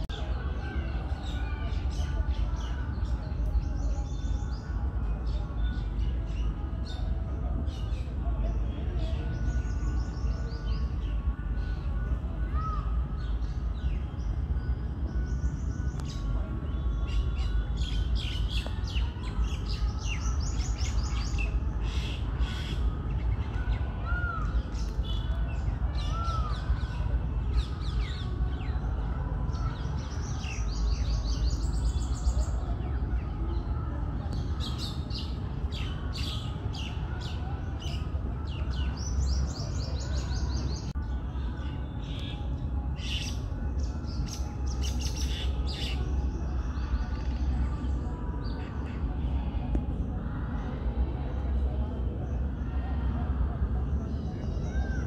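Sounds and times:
steady low rumble: 0.0 - 55.0.

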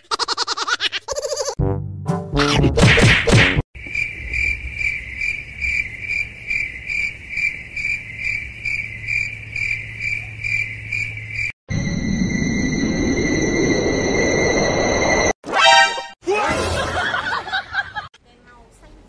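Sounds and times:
cricket chirping: 3.8 - 15.3.

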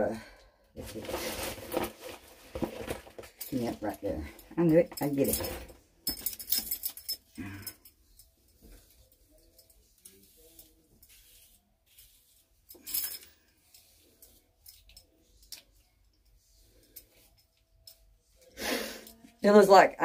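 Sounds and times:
hair rustling and scratching: 0.8 - 5.6, 8.2 - 18.2.

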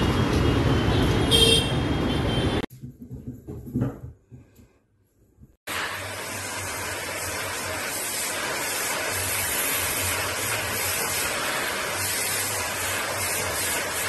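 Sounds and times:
vacuum cleaner suction hiss: 5.7 - 14.0.

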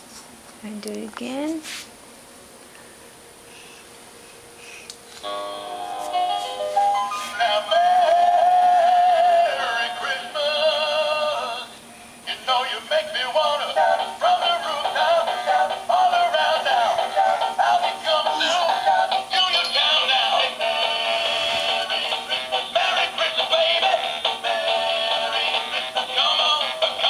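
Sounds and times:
toy speaker synthetic singing: 12.3 - 27.0.

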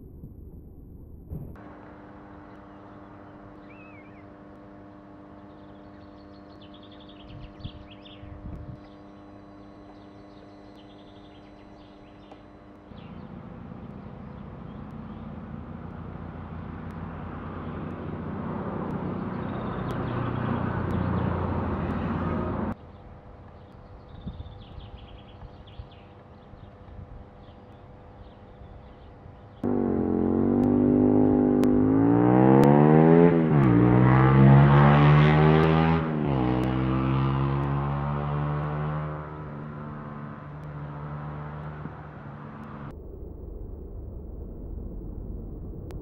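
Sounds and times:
faint bird chirps: 2.4 - 4.4, 5.3 - 15.4
vehicle passing: 12.9 - 22.8, 29.6 - 46.0.

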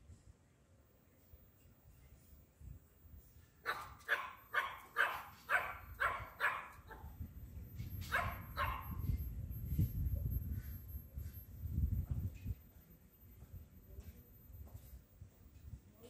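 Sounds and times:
dog barking: 3.6 - 7.1, 8.1 - 9.0.

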